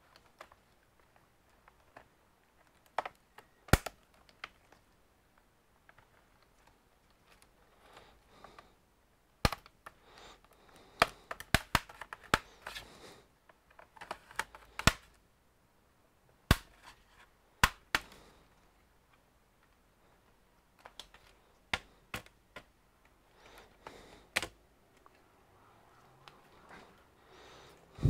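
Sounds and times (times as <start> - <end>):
laptop cover clips snapping: 2.8 - 4.6, 11.0 - 12.8, 13.8 - 15.1.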